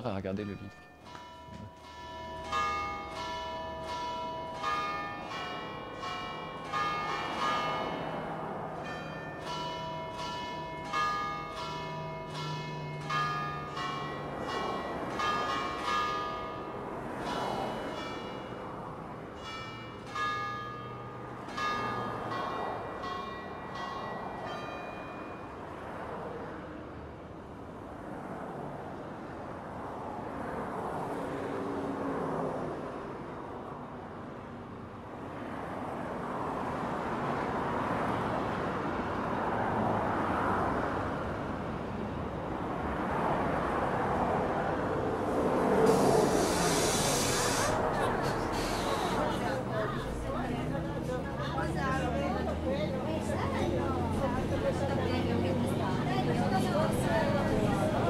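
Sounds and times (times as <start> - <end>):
church bells pealing: 0.0 - 25.6, 45.9 - 58.0.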